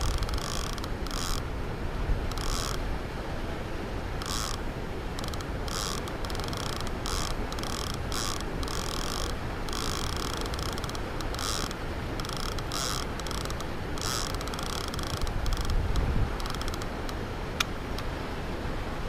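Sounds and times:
fishing reel ratcheting: 0.0 - 1.4, 2.3 - 2.8, 4.2 - 4.6, 5.2 - 16.9.

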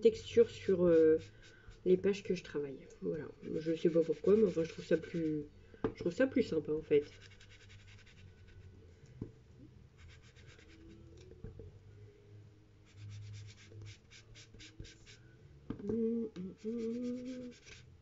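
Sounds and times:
tool scratching on paper: 0.6 - 2.2, 3.4 - 5.4, 7.0 - 8.7, 10.0 - 11.0, 12.9 - 15.2, 16.8 - 17.9.

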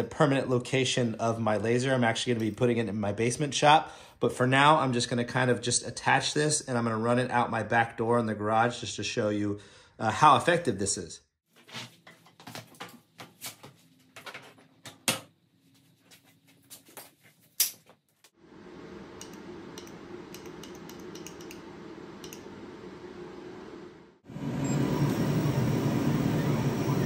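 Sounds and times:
fan whirring: 18.4 - 27.0.

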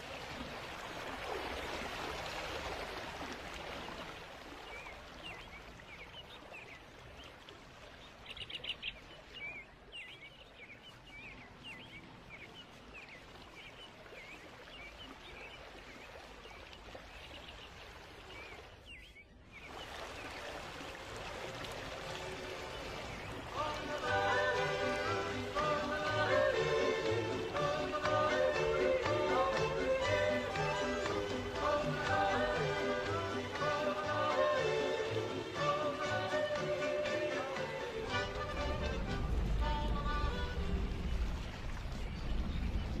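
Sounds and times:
small birds chirping: 4.7 - 20.4.

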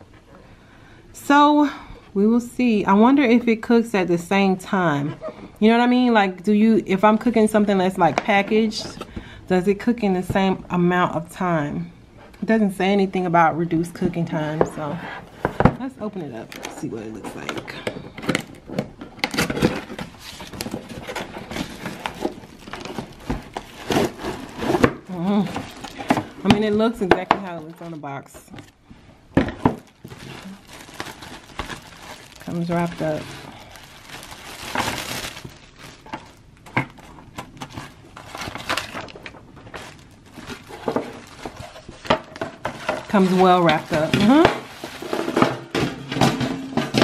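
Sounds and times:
plastic wrapping crinkling: 15.3 - 46.9.

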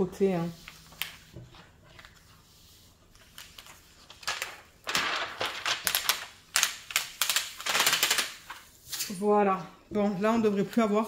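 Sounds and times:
plastic film peeling and crackling: 0.5 - 9.1.

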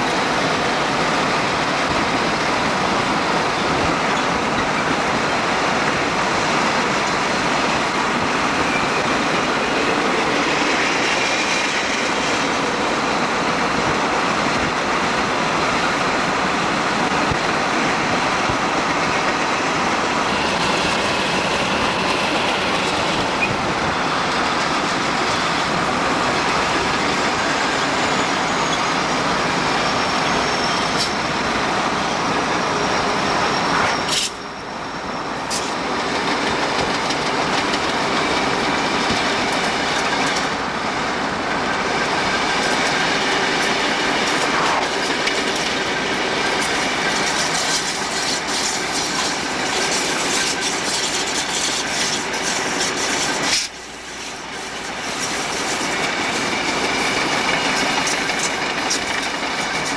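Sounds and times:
train wheels rumbling on rails: 0.0 - 59.9
high wheel squeals: 6.3 - 12.9, 18.8 - 40.5, 41.7 - 59.9.

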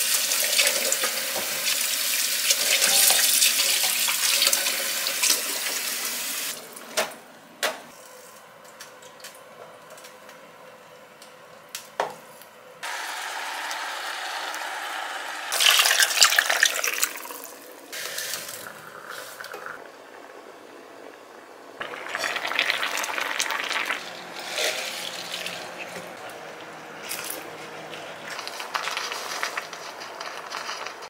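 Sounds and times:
liquid pouring into pan: 15.6 - 19.8, 21.8 - 25.6.

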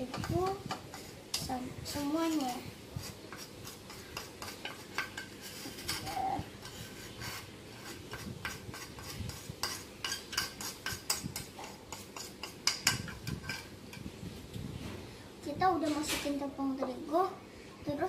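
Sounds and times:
spoon scraping and tapping bowl: 0.0 - 1.5, 3.3 - 14.1.

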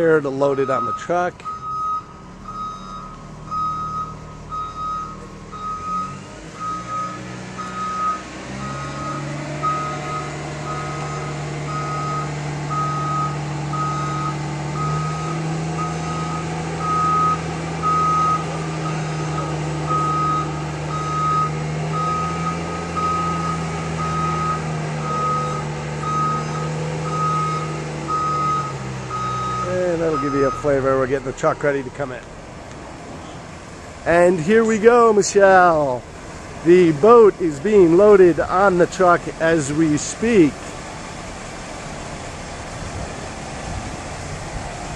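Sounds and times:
forklift engine humming: 0.0 - 44.9
back-up alarm beeping: 0.5 - 30.8.

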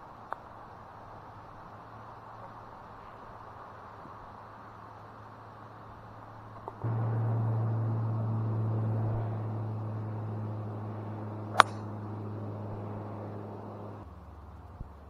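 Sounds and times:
steady low hum: 4.8 - 15.0
golf club striking ball: 6.8 - 14.0.

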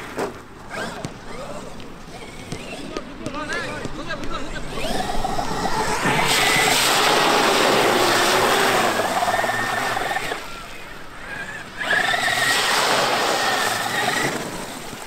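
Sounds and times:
electric motor whine: 0.7 - 15.0
water splashing: 4.8 - 15.0.

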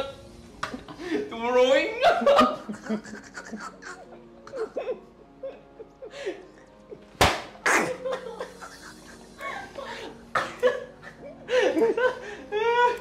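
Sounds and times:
background music: 0.0 - 13.0
laughter: 2.0 - 7.1, 7.7 - 13.0
tortilla slapping a face: 7.2 - 8.0.

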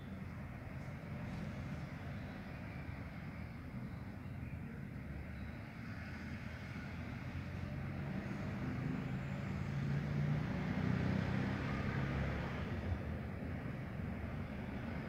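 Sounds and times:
vehicle engine rumble: 0.0 - 15.0.

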